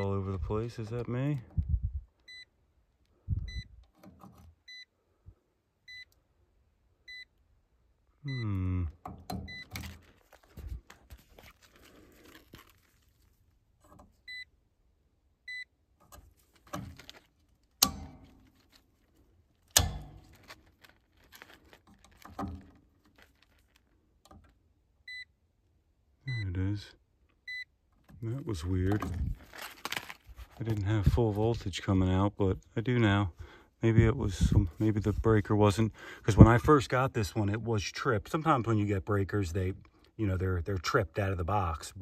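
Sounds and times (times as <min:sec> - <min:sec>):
multimeter beeping: 0:04.7 - 0:04.9, 0:09.4 - 0:09.8.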